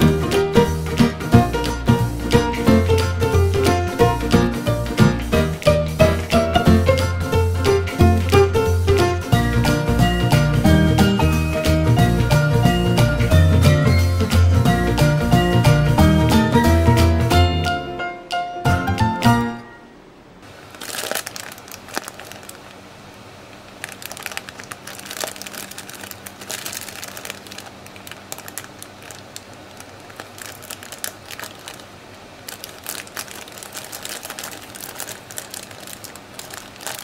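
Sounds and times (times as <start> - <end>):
plastic bag crinkling: 20.4 - 37.0.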